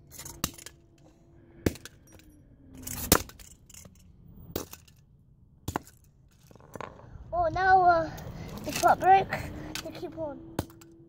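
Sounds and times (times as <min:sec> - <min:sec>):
clinks of loose pieces: 0:00.0 - 0:01.1, 0:01.7 - 0:05.1
hammer striking metal toy car: 0:00.0 - 0:05.0, 0:10.5 - 0:11.0.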